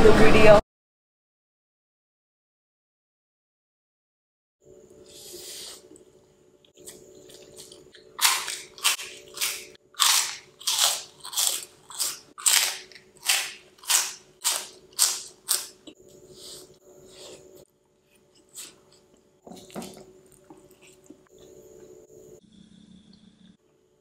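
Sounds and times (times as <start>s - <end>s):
open-mouthed chewing: 6.8s - 17.4s, 18.3s - 21.3s.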